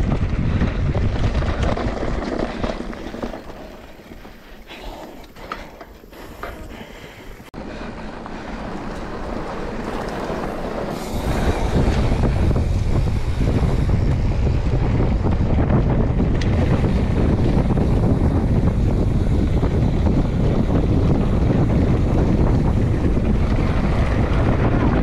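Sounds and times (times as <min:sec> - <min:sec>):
wind buffeting microphone: 0:00.0 - 0:05.4, 0:06.1 - 0:25.0
mountain bike rattling: 0:00.0 - 0:25.0.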